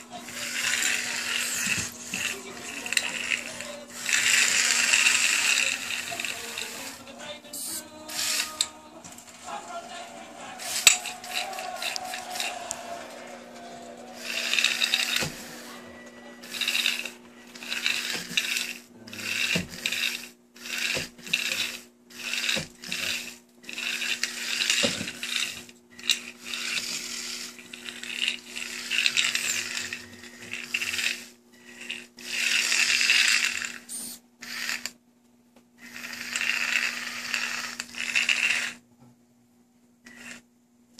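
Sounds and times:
robot motors whirring: 0:00.1 - 0:07.0, 0:07.6 - 0:08.7, 0:14.2 - 0:34.9.

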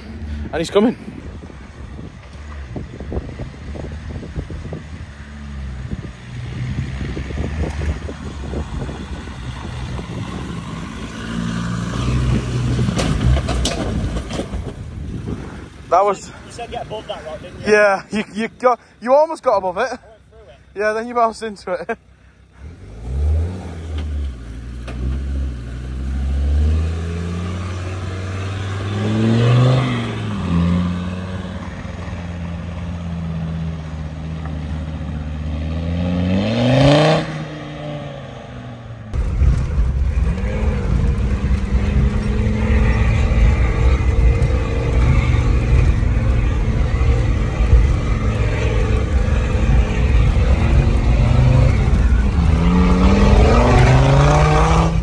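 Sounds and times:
engine revving over rocks: 0:05.9 - 0:14.7, 0:22.8 - 0:32.6, 0:39.1 - 0:55.0
road rumble inside vehicle cabin: 0:38.8 - 0:55.0
steady engine drone: 0:39.0 - 0:55.0.

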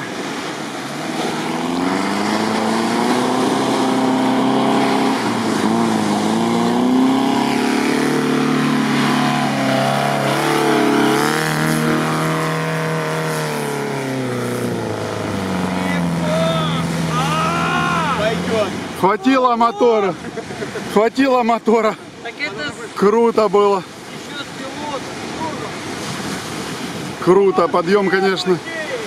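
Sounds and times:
off-road engine revving: 0:00.0 - 0:22.0.

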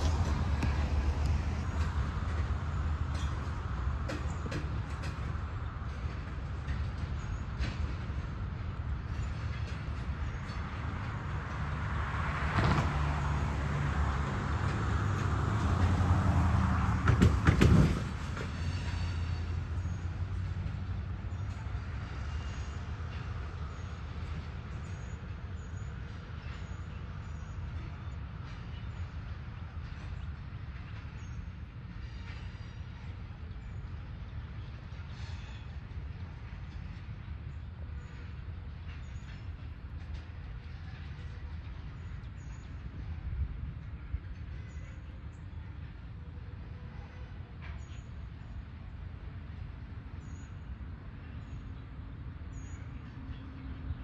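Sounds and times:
freight train rumbling: 0:00.0 - 0:54.0
train car knocks: 0:16.9 - 0:18.6.

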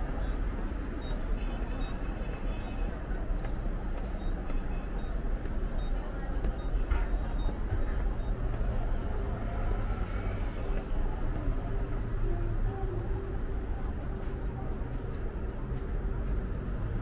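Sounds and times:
faint voices: 0:00.0 - 0:17.0
traffic rumble: 0:00.0 - 0:17.0.

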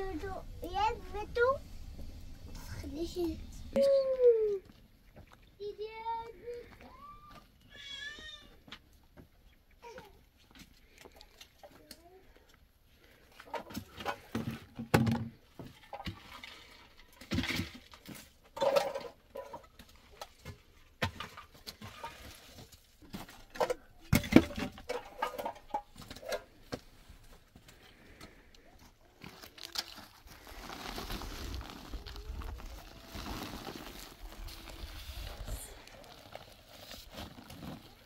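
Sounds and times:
concrete blocks knocking and scraping: 0:17.2 - 0:27.6
paper sack rustling: 0:29.2 - 0:38.0.

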